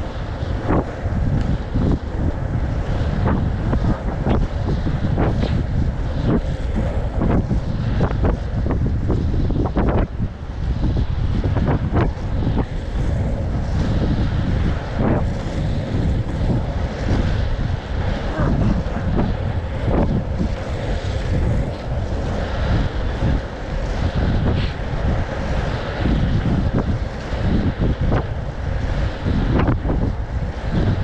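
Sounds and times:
skate wheels rumbling on asphalt: 0.0 - 31.0
wind buffeting microphone: 0.0 - 31.0.

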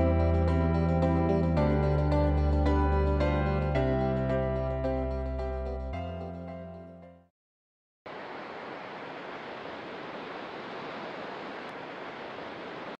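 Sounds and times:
soft instrumental music: 0.0 - 7.2.

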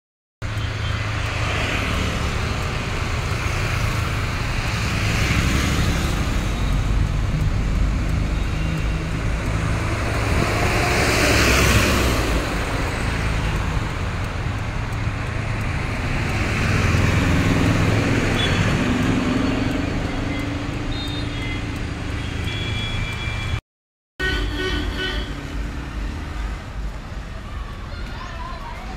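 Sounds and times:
bus passing: 0.4 - 23.6, 24.2 - 28.9
road traffic noise: 0.4 - 23.6, 24.2 - 28.9.

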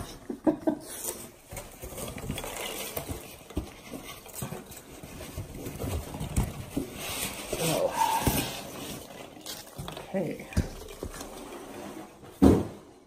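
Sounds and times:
packing peanuts rustling: 1.0 - 12.2.

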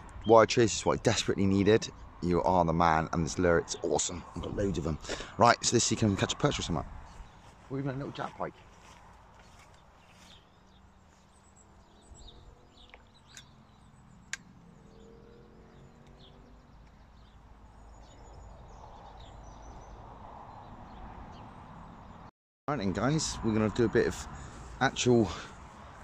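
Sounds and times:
bird chirps: 7.1 - 22.3.

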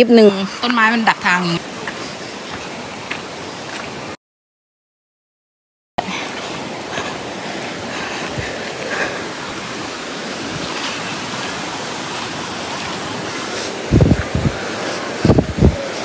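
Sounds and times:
waterfall rushing over rock: 6.0 - 16.0.

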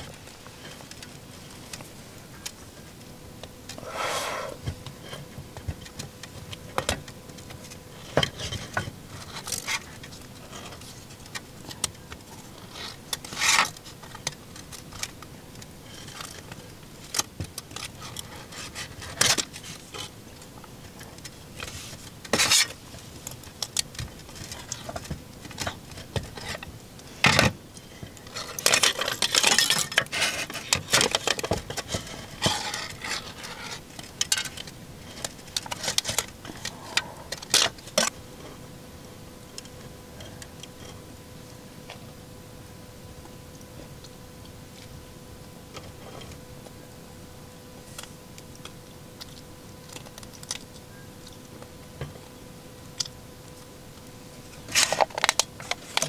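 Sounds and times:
aluminium can crinkling: 54.6 - 56.0.

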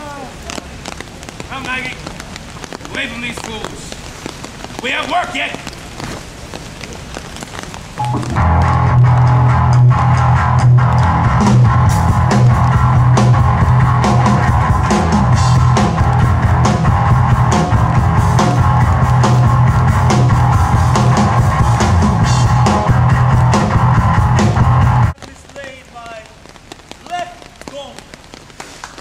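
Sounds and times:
loud rock music: 8.0 - 25.1.

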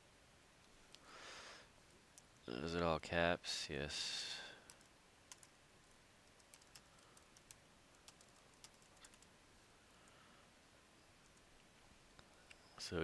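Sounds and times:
low background hiss: 0.0 - 13.0
keyboard typing: 4.7 - 5.5, 6.3 - 9.3.

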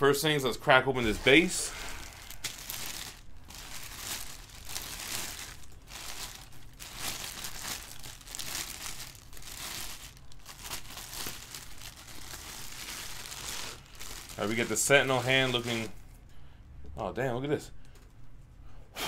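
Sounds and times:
plastic bag crinkling: 1.0 - 16.0.

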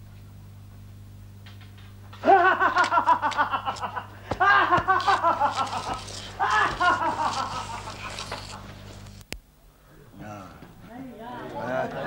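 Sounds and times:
low mains hum: 0.0 - 12.0
person laughing loudly: 2.2 - 8.6.

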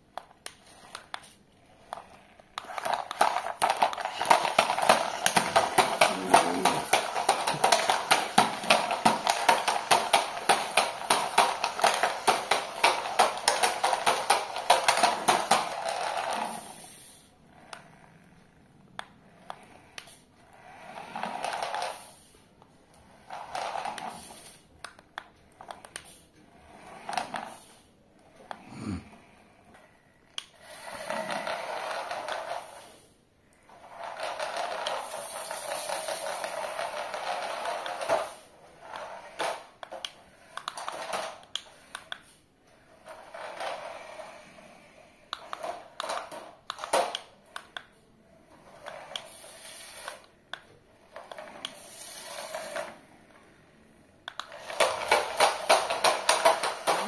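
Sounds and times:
toy car electric motors whirring: 0.2 - 28.9, 29.7 - 57.0
toy car knocking on hard floor: 2.6 - 16.6, 54.4 - 57.0.

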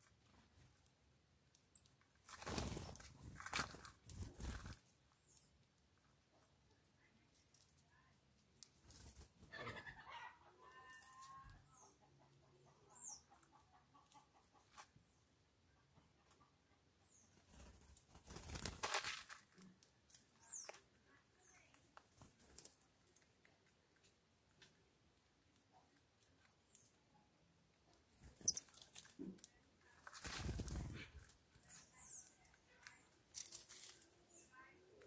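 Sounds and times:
wing flapping: 2.2 - 4.9, 17.4 - 19.4, 30.0 - 31.3
hen clucking: 9.5 - 14.8.

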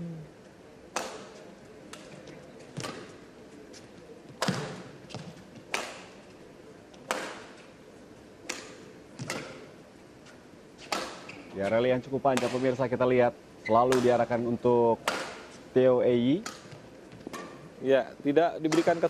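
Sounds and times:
rackets hitting shuttlecock: 0.9 - 3.2, 4.4 - 6.3, 6.9 - 7.7, 8.4 - 9.7, 10.8 - 11.4, 12.3 - 12.8, 13.9 - 14.4, 15.0 - 15.6, 16.4 - 17.7, 18.7 - 19.0.

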